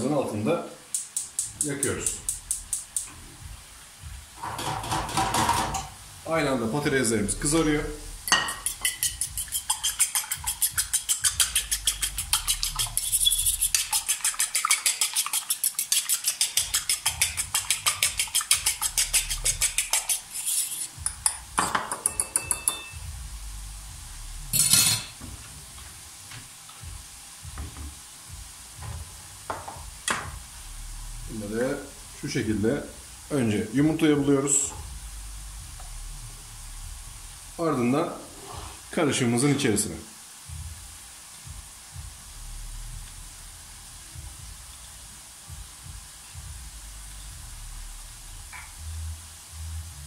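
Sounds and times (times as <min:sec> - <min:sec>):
fork beating egg in bowl: 0:08.3 - 0:22.9.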